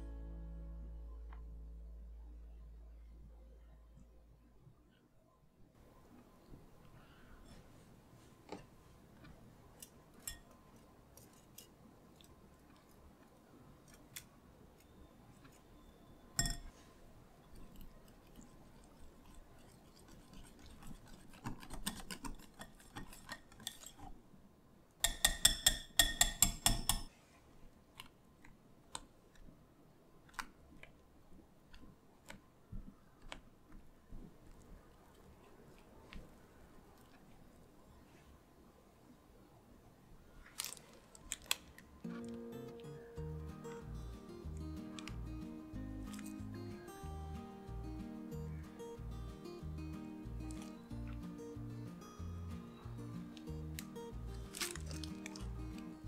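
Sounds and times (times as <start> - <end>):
whisk wires clinking on glass: 16.4 - 16.7
whisk and spatula scraping bowl: 17.6 - 24.0.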